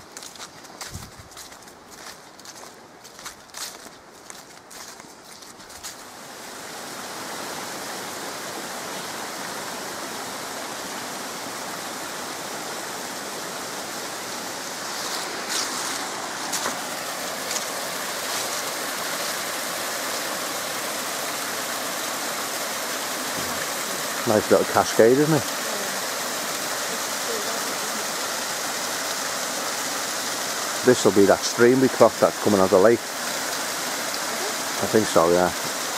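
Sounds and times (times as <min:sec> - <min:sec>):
stream splashing in cascades: 0:00.0 - 0:35.9.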